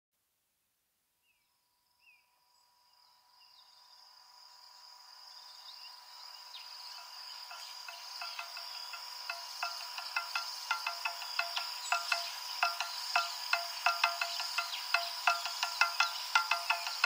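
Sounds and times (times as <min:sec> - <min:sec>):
insect-like high trill: 0:06.0 - 0:17.0.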